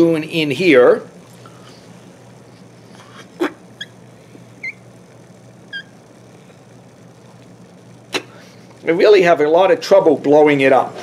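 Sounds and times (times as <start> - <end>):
balloon squeaking against glass: 4.6 - 4.8, 5.7 - 6.0.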